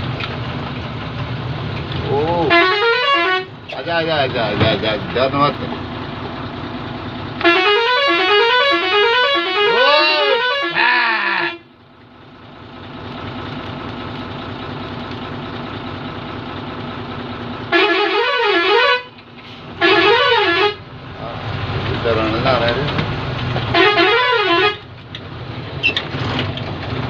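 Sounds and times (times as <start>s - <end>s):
musical vehicle horn: 2.4s - 3.6s, 7.4s - 11.7s, 17.7s - 20.8s, 23.7s - 24.9s
warbling horn blasts: 2.4s - 3.7s, 7.4s - 11.7s, 17.7s - 19.2s, 19.8s - 20.9s, 23.7s - 24.8s.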